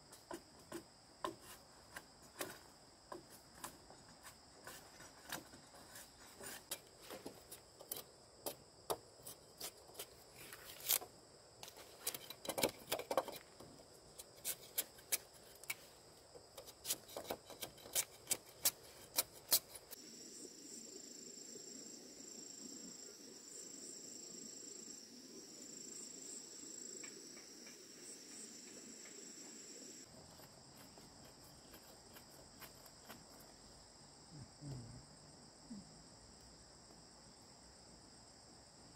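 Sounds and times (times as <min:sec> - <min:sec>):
insects chirring: 0:00.0 - 0:38.9
sharp knocks and clicks: 0:12.0 - 0:13.7.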